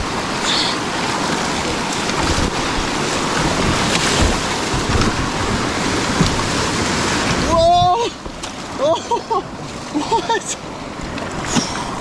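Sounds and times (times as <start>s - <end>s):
whitewater rushing: 0.0s - 12.0s
wind buffeting microphone: 1.0s - 9.7s.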